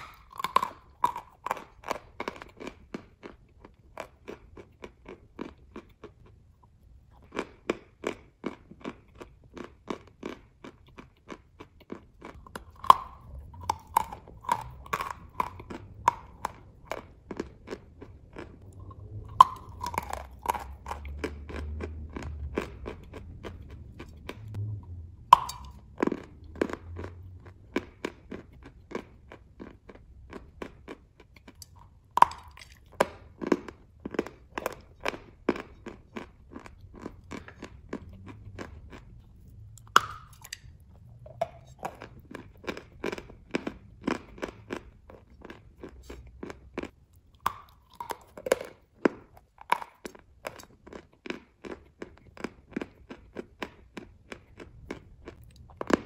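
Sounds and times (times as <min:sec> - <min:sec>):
crunchy chewing of chalk: 0:00.0 - 0:56.0.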